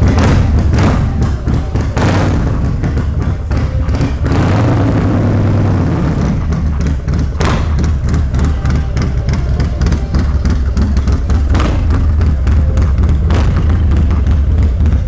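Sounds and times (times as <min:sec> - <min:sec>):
motorcycle engine running loud: 0:00.0 - 0:15.0.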